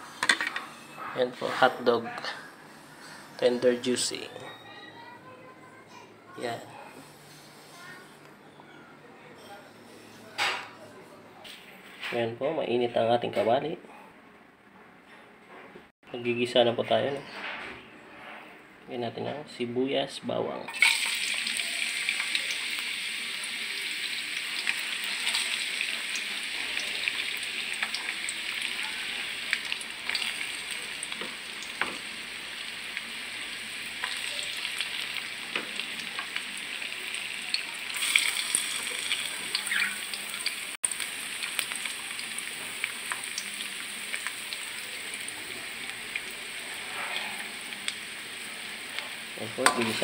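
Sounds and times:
onion and garlic sizzling in oil: 20.7s - 50.0s.

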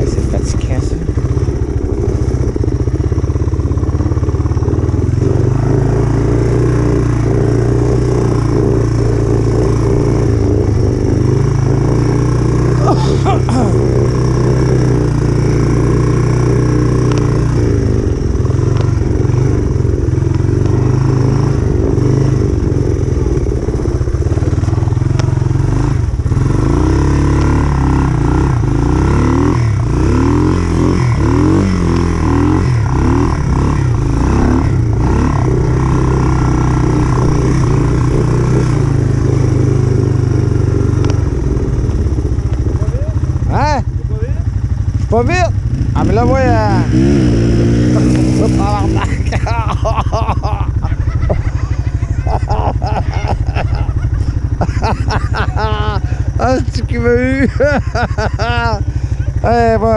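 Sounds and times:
motor trike engine running: 0.0s - 59.9s.

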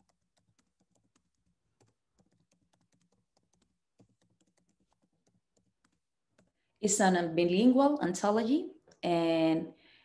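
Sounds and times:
keyboard typing clicks: 0.0s - 6.6s.

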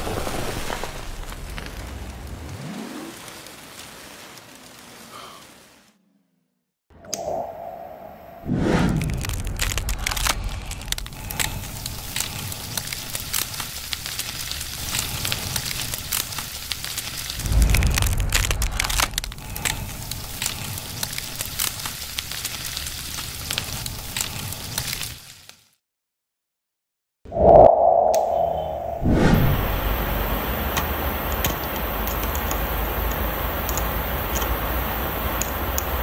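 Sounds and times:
low flame rumble: 0.0s - 3.3s, 7.5s - 24.7s, 27.4s - 36.0s
pasta crackling and popping: 0.0s - 5.4s, 8.9s - 25.8s, 30.2s - 36.0s.

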